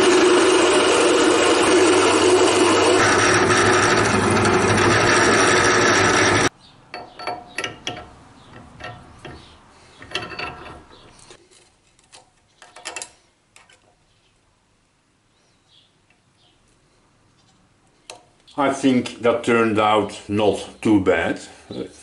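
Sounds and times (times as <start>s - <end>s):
drill press drilling metal: 0.0s - 6.5s.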